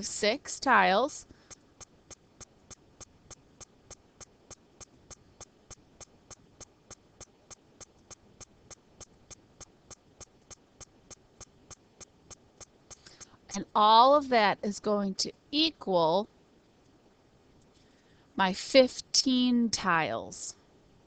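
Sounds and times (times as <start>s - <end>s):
faint ticking clicks: 1.2s - 13.4s.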